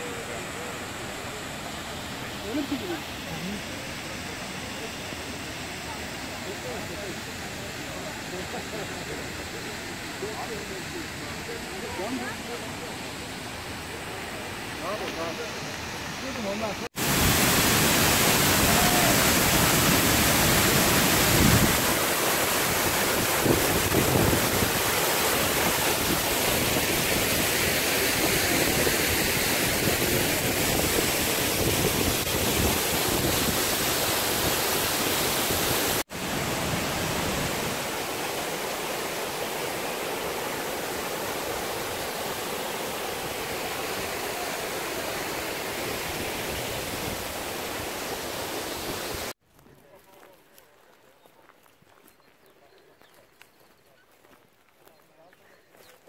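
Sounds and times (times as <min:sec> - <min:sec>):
waterfall roaring: 0:00.0 - 0:49.4.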